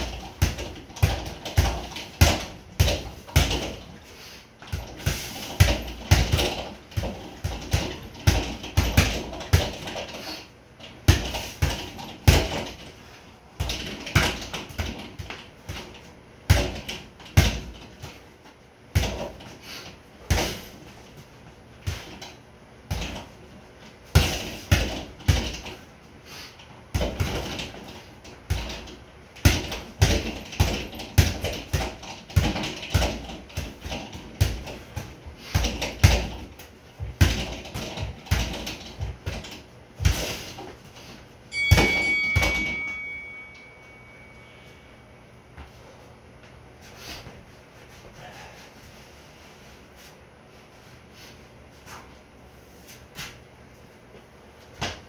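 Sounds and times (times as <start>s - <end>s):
gloves punching a bag: 0.0s - 10.2s, 10.8s - 12.9s, 13.6s - 18.3s, 18.9s - 19.5s, 20.2s - 20.9s, 21.8s - 23.3s, 24.0s - 25.8s, 26.9s - 40.7s
loud ringing: 41.5s - 45.2s.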